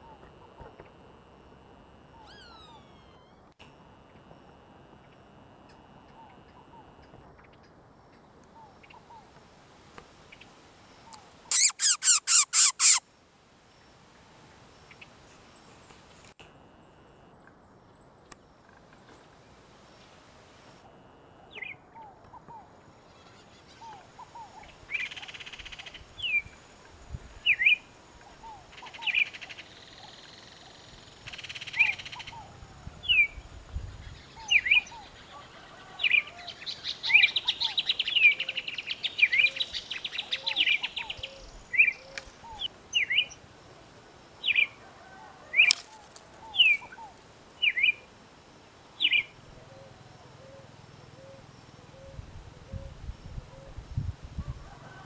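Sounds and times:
kingfisher calling: 11.5s - 13.0s.

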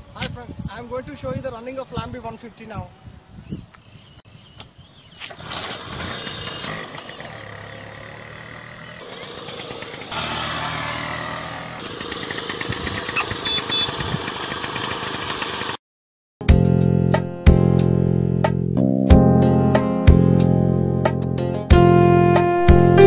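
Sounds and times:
scooter engine running: 5.4s - 15.8s.

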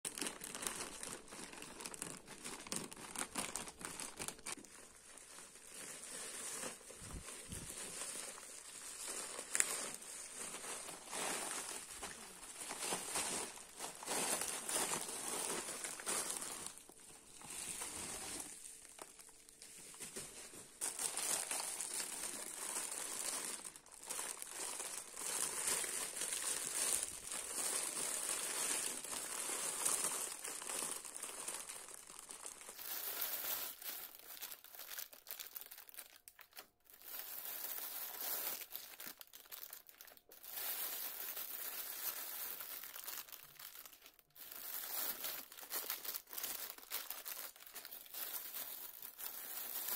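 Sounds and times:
plastic packaging crinkling: 0.1s - 49.9s.

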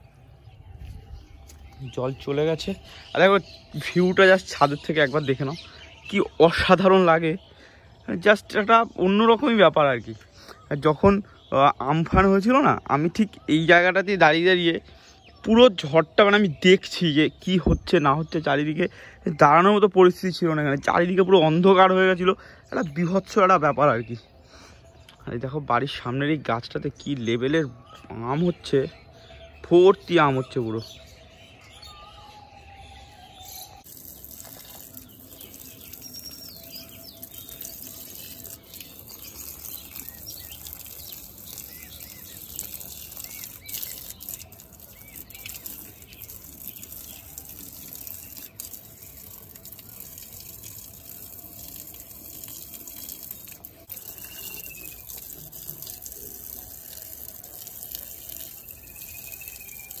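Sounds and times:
bird chirps: 0.0s - 60.0s
hose water splashing: 33.6s - 60.0s.

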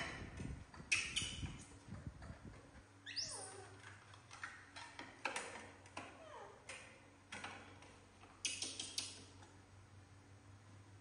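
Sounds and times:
baby monkey squeaking: 3.0s - 3.7s.

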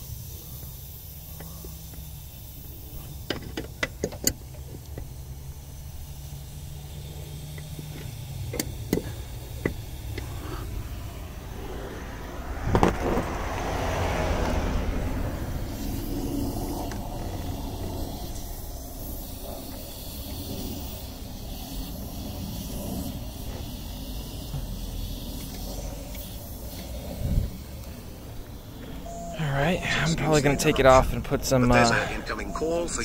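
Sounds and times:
engine running hum: 0.0s - 33.0s
refrigerant hissing: 0.0s - 33.0s
wrench clicking on metal fitting: 3.2s - 5.1s, 7.5s - 10.6s.

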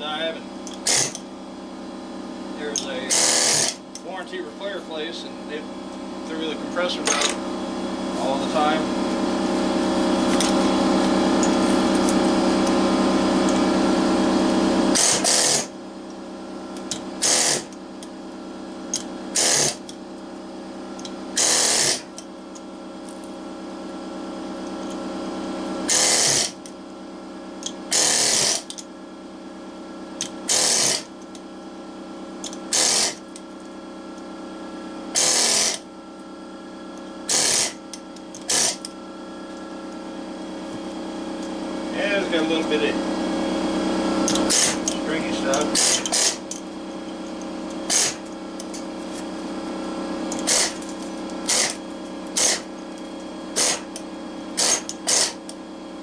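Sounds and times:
steady hum: 0.0s - 56.0s
air chisel hammering metal: 2.8s - 4.1s, 14.9s - 15.7s, 17.2s - 17.8s, 19.4s - 19.9s, 21.4s - 22.2s, 25.9s - 26.6s, 27.9s - 28.8s, 30.5s - 31.1s, 32.7s - 33.2s, 35.2s - 35.8s, 44.3s - 46.6s, 47.9s - 48.3s, 51.4s - 52.7s, 53.6s - 54.0s, 54.6s - 55.4s.

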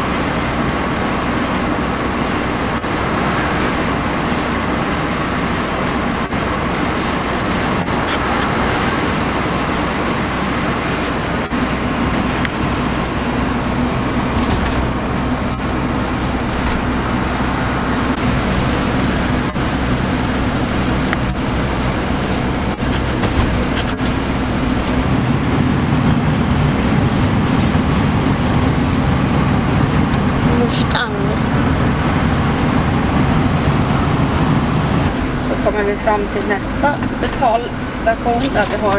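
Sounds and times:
engine and tyre noise: 0.0s - 38.9s
interior clicks and rattles: 3.8s - 38.9s.

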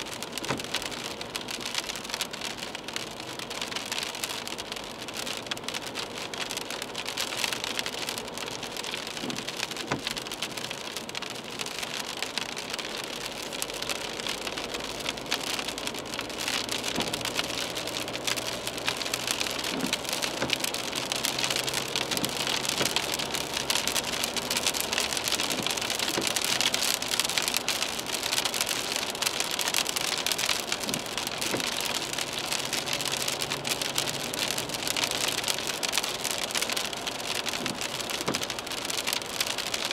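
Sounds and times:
rain pattering on car windshield: 0.0s - 39.9s
tyre noise on wet road: 0.0s - 39.9s.

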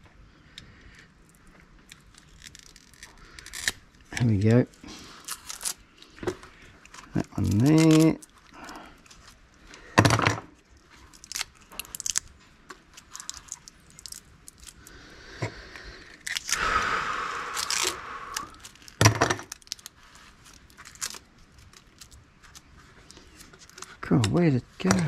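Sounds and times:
tearing rasping sound: 1.8s - 6.1s, 6.9s - 9.4s, 15.6s - 24.0s.

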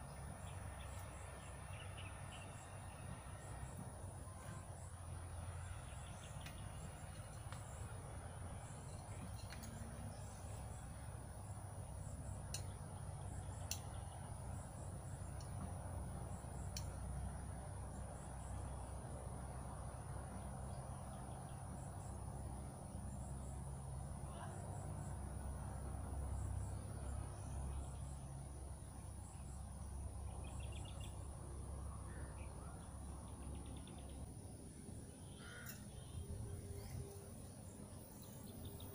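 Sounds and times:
insects trilling: 0.0s - 38.9s
low steady rumble: 0.0s - 38.9s
light clicks: 13.4s - 14.2s, 16.7s - 17.0s.

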